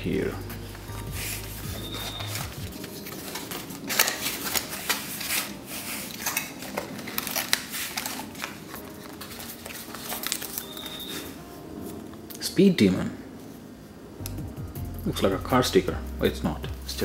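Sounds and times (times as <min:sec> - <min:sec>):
paper and plastic bag rustling: 0:00.6 - 0:12.2.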